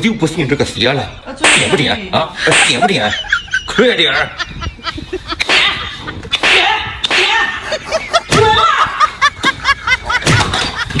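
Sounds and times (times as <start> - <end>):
rapid laughter: 2.4 - 6.5, 7.5 - 11.0.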